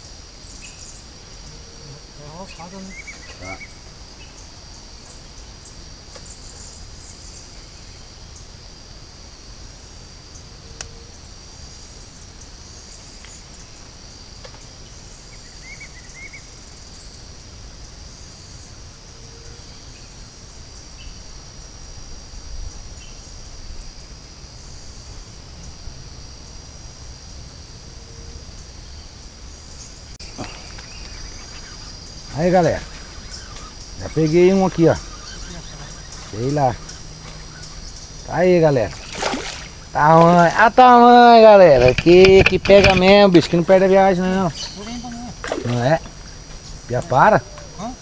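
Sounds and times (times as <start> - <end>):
insects chorus: 0.0 - 48.0.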